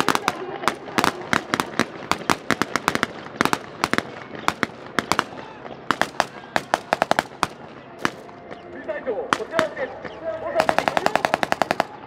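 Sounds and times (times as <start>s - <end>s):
rifles firing blank rounds: 0.0s - 8.4s, 9.3s - 9.9s, 10.6s - 12.0s.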